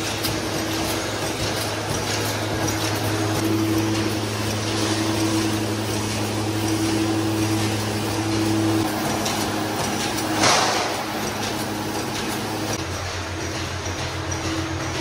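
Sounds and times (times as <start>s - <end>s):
machine electric hum: 0.0s - 15.0s
loud metallic clank: 10.3s - 11.6s.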